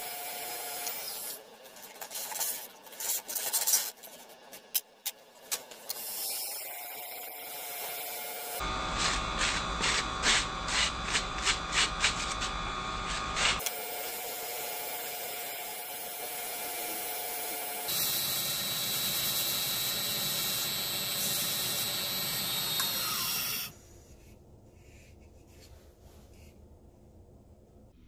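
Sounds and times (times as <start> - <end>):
sandpaper hissing on wood: 6.0 - 6.6, 8.9 - 14.3
wood lathe running: 7.0 - 23.7.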